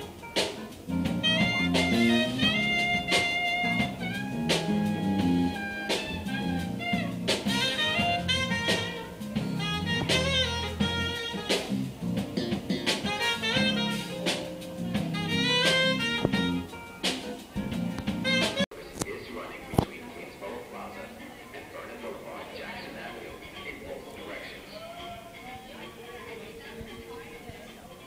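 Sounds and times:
electric guitar: 0.0 - 18.6
drum kit: 0.0 - 18.7
saxophone melody: 0.0 - 18.7.

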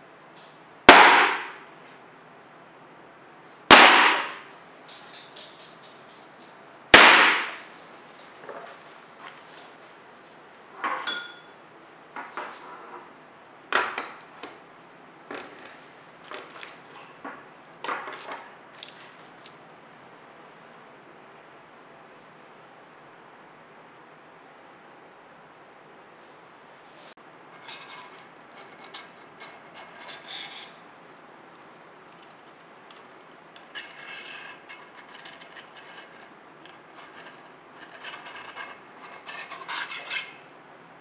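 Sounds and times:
ringing clink of metal or glass: 11.0 - 11.6.

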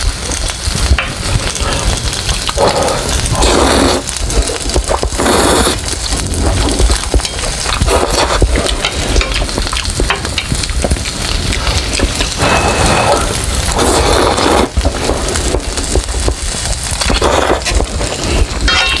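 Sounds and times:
noodle slurping and chewing: 0.9 - 18.7.

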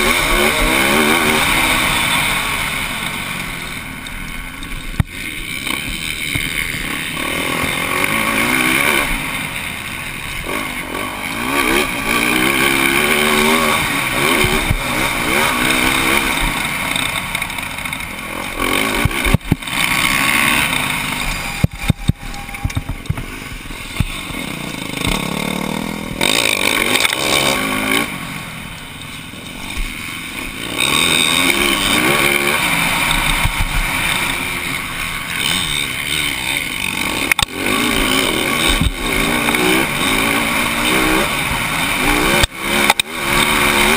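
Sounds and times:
motocross bike engine revving: 0.0 - 43.9.

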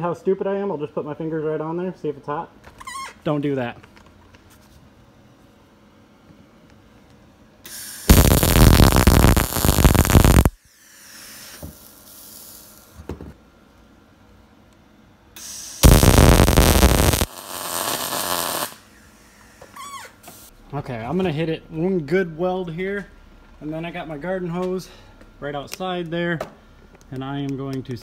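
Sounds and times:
welder arc: 7.7 - 12.9, 15.4 - 18.9.

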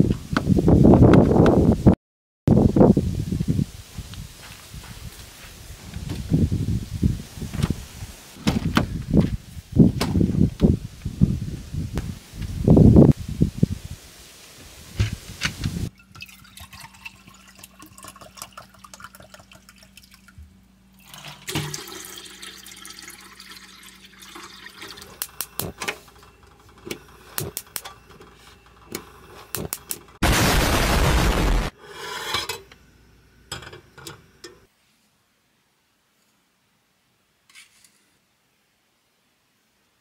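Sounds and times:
water pouring into a pot: 15.9 - 20.4, 21.0 - 25.2
loud even rushing noise: 30.2 - 31.7.

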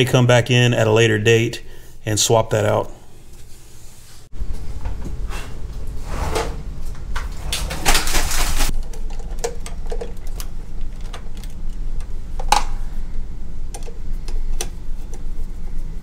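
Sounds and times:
steady low hum: 0.0 - 16.0
scraping rustle: 3.3 - 8.7.

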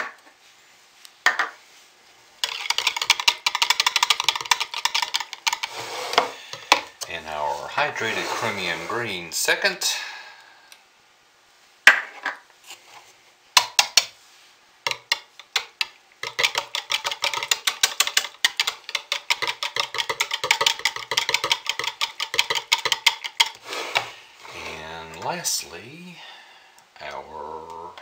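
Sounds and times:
spoon stirring in plastic pitcher: 2.4 - 8.9, 14.9 - 25.6.

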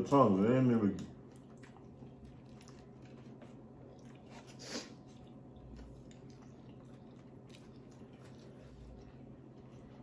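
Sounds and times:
faint low hum: 0.0 - 10.0
eating and mouth sounds: 0.1 - 10.0.

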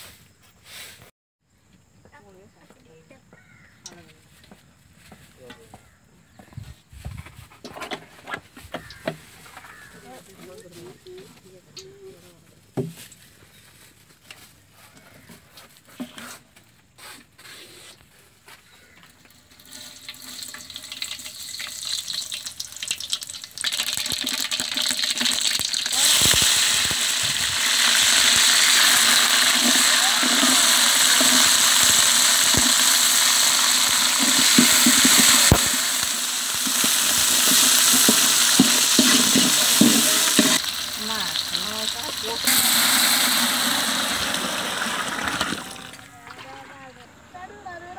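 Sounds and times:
seeds crackling in oil: 18.8 - 45.8
hot oil sizzling: 19.2 - 46.0.

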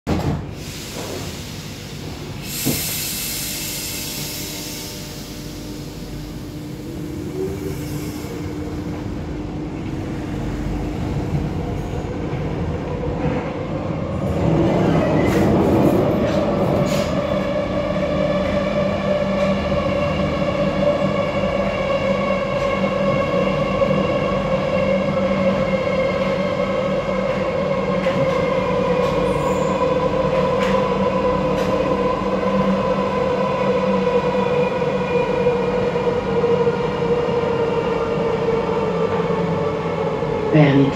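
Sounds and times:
train running noise: 0.1 - 40.9
air hiss: 0.6 - 6.1.

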